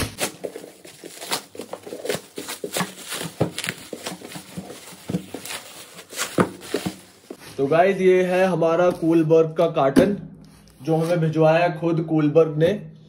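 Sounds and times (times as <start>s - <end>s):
plastic wrap crinkling and tearing: 0.0s - 7.4s.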